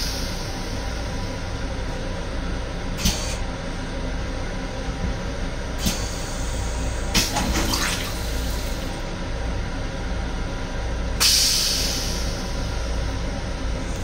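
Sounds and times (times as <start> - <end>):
steady low rumble: 0.0 - 14.0
toilet water running and draining: 7.1 - 8.9
water spurts: 7.2 - 8.4.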